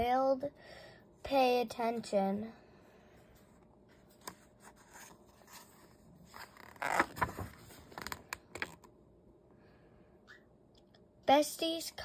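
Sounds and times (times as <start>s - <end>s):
book page turning: 3.9s - 8.9s.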